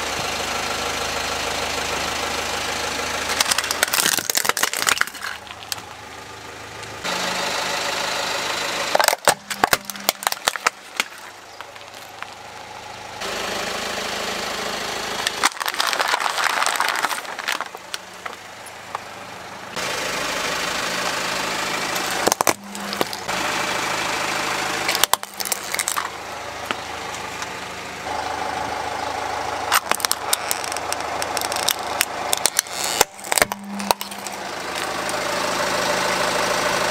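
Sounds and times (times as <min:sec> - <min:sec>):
car engine idling: 0:00.0 - 0:36.9
tyre crushing plastic toys: 0:03.3 - 0:05.9, 0:08.9 - 0:12.6, 0:15.2 - 0:19.0, 0:22.0 - 0:23.3, 0:24.9 - 0:26.8, 0:29.7 - 0:35.2.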